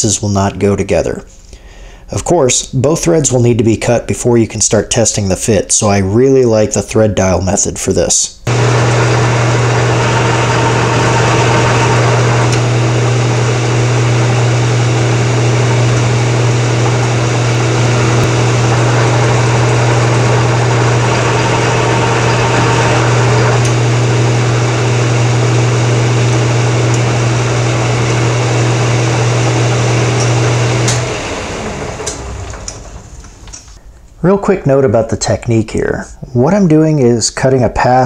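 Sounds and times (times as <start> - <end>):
metal lathe humming and whining: 8.5 - 33.8.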